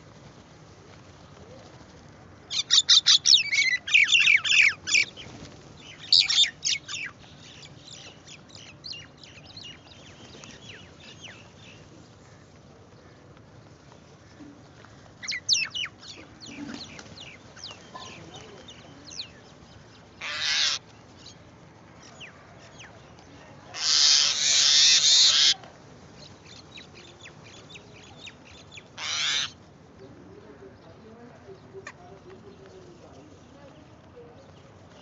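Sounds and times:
small birds chirping: 0:02.5 - 0:35.0
crows cawing: 0:20.2 - 0:20.8, 0:29.0 - 0:29.6.

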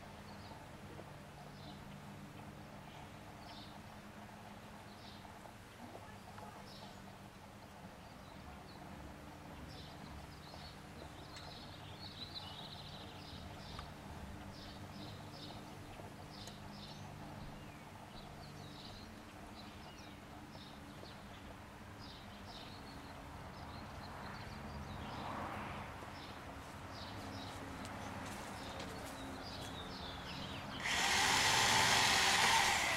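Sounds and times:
songbirds chirping: 0:00.0 - 0:32.9
honey bees humming: 0:30.7 - 0:32.9
loud rushing noise: 0:30.8 - 0:32.9.

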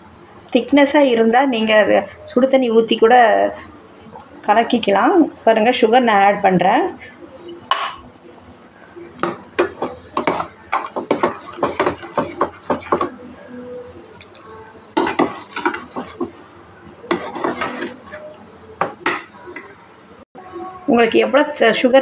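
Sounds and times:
ladle scraping steel pot: 0:09.2 - 0:13.2, 0:14.2 - 0:16.4, 0:17.0 - 0:19.8.

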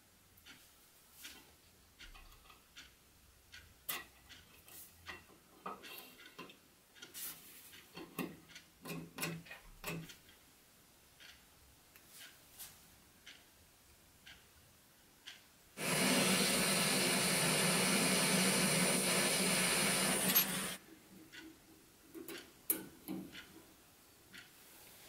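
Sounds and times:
light ticks and taps: 0:00.4 - 0:10.4, 0:11.2 - 0:13.5, 0:14.2 - 0:14.6, 0:15.2 - 0:15.5, 0:21.2 - 0:24.6
torch flame hissing: 0:15.8 - 0:20.8.

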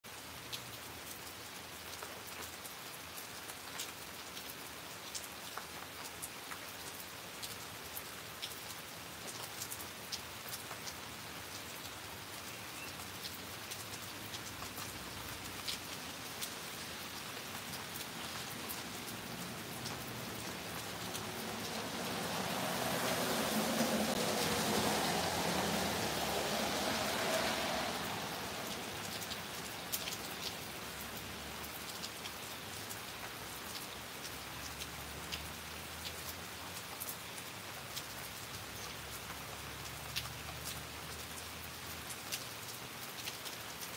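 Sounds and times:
steady rain falling: 0:00.0 - 0:43.9
raindrops ticking: 0:00.1 - 0:43.9.

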